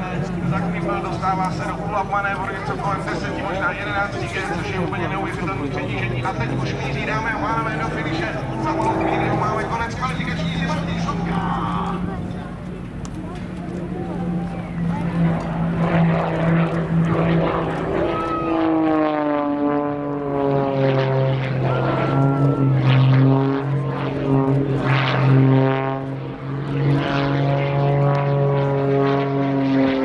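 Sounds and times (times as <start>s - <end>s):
propeller plane engine: 0.0s - 30.0s.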